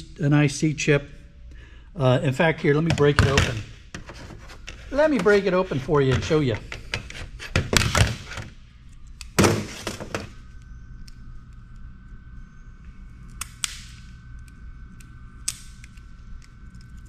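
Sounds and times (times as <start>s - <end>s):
pliers cracking component casing: 13.3s - 17.0s.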